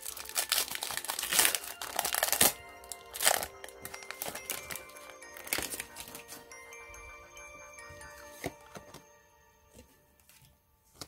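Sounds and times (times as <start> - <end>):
foil wrapper tearing and crinkling: 0.0 - 4.8
background music: 0.0 - 11.0.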